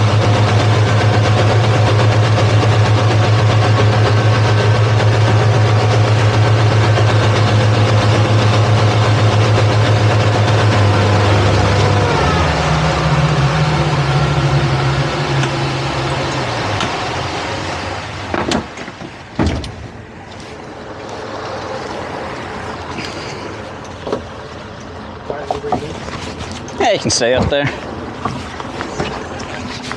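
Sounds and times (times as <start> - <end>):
outboard motors running: 0.0 - 29.9
sharp knocks: 18.3 - 19.8.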